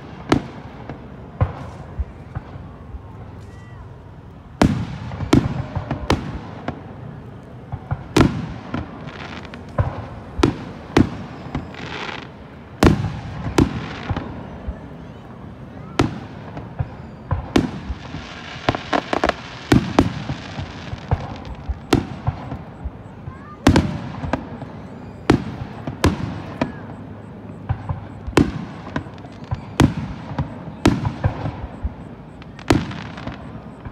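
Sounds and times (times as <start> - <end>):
firework crackling: 0.0 - 33.9
firework shells booming: 7.6 - 14.7, 15.8 - 33.9.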